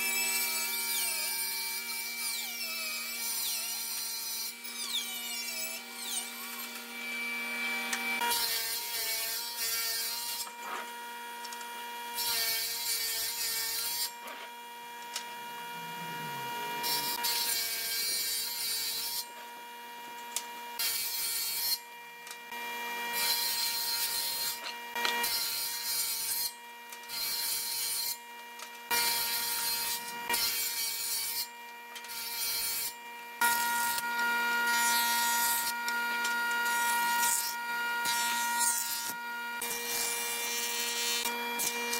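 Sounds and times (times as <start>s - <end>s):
jointer cutting boards: 0.0s - 19.6s, 28.9s - 41.9s.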